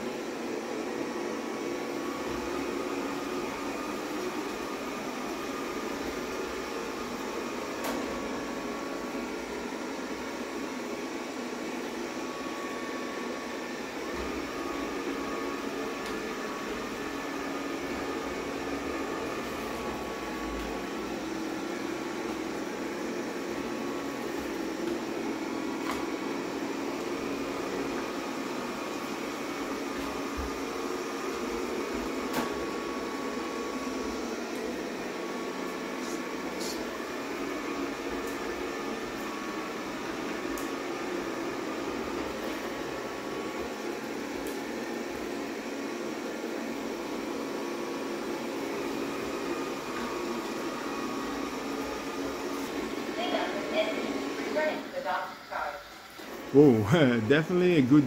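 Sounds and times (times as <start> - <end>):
robot vacuum whirring: 11.9 - 57.2.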